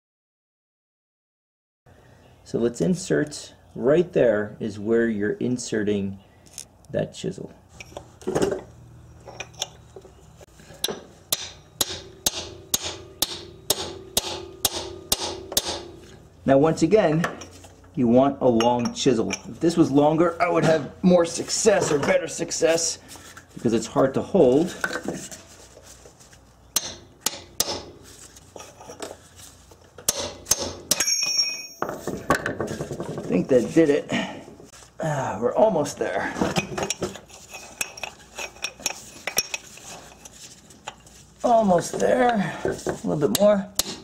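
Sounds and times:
hammer striking metal chisel: 10.8s - 16.0s, 26.8s - 28.0s, 30.1s - 32.0s, 43.3s - 44.0s.

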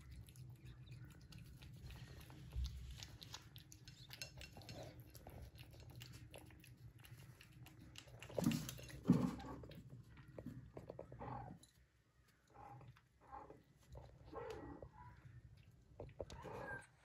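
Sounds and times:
cat chewing kibble: 0.0s - 11.7s.

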